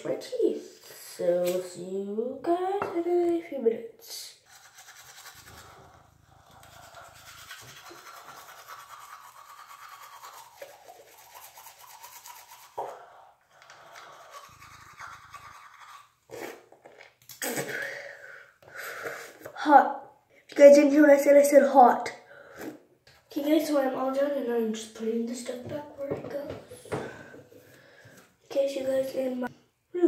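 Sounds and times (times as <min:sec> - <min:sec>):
toothbrush scrubbing teeth: 0:04.3 - 0:17.8
person spitting toothpaste foam: 0:04.4 - 0:13.0, 0:13.8 - 0:18.1.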